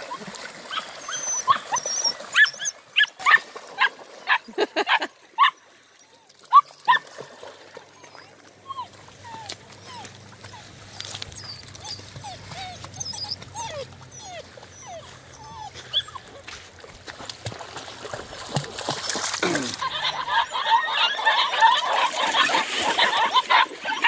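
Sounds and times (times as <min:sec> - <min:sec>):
puppies whimpering: 0:00.7 - 0:03.2, 0:07.9 - 0:16.5, 0:19.8 - 0:24.0
paws on river stones: 0:05.4 - 0:24.0.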